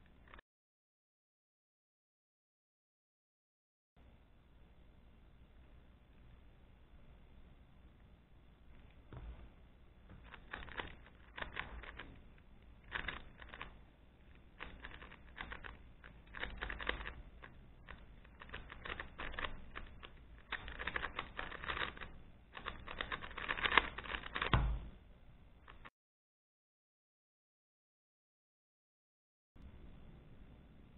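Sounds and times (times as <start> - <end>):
plastic cube clicking: 10.2 - 24.8.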